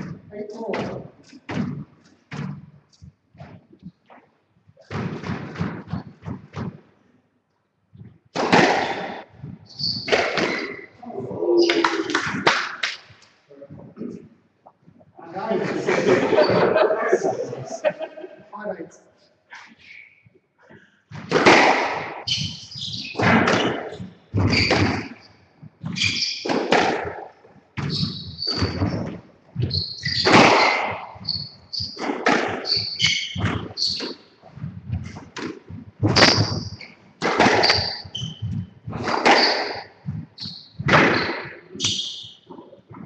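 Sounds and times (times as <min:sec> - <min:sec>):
squash ball hitting rackets and walls: 0:00.0 - 0:03.9, 0:04.8 - 0:06.8, 0:08.3 - 0:10.9, 0:11.6 - 0:13.0, 0:21.1 - 0:25.2, 0:25.8 - 0:42.6
shoes squeaking on wooden floor: 0:08.0 - 0:12.4, 0:22.1 - 0:43.0.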